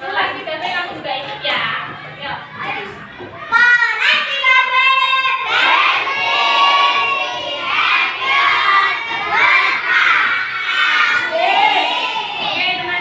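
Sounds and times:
young children shouting together: 3.1s - 13.0s.

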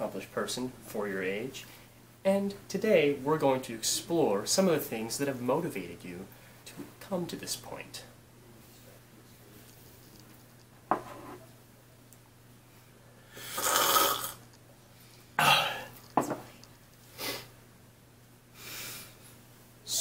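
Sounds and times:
person slurping a drink: 13.4s - 14.4s.

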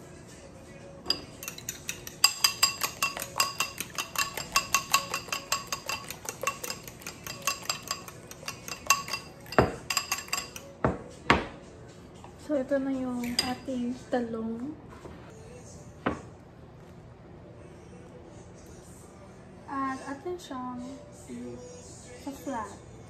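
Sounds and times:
utensil clinking against bowl: 1.0s - 11.0s, 13.2s - 13.8s.

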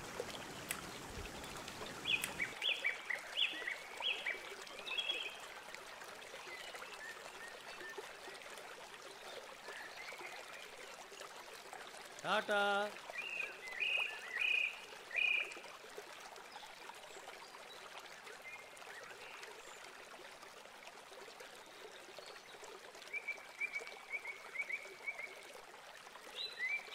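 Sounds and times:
river water rushing over rocks: 0.0s - 2.7s
high chirping calls: 0.5s - 2.8s.

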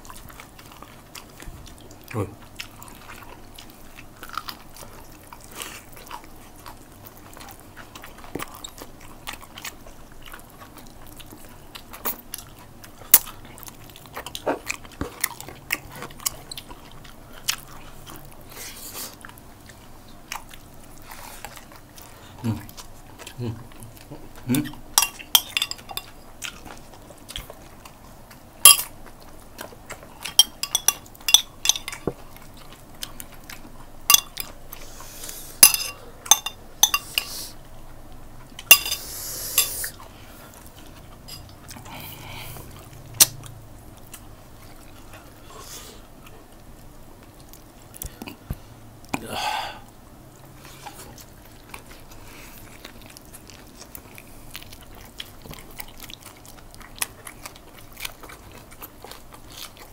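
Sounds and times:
close chewing and sucking: 0.0s - 49.2s, 50.0s - 59.9s
sharp clicks and clinks: 25.0s - 26.1s, 30.4s - 32.1s, 34.1s - 34.4s, 35.6s - 37.3s.

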